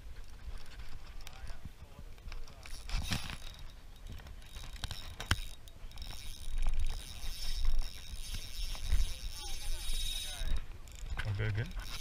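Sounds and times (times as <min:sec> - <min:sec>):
fishing reel whirring: 0:02.4 - 0:12.0.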